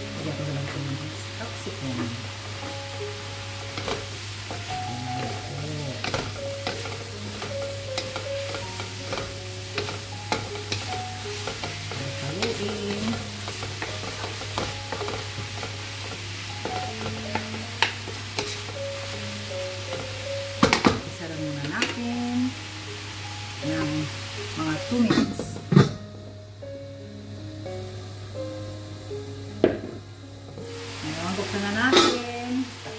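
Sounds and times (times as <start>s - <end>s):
food sizzling in a pan: 0.0s - 32.9s.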